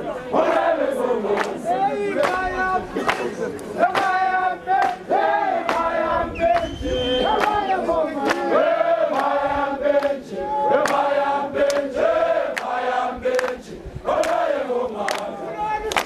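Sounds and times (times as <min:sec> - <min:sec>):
crowd singing in chorus: 0:00.0 - 0:16.0
hand claps: 0:01.3 - 0:01.6, 0:02.2 - 0:06.7, 0:07.3 - 0:07.6, 0:08.2 - 0:08.5, 0:09.1 - 0:09.4, 0:10.0 - 0:10.2, 0:10.8 - 0:11.9, 0:12.5 - 0:13.6, 0:14.2 - 0:14.4, 0:15.0 - 0:16.0.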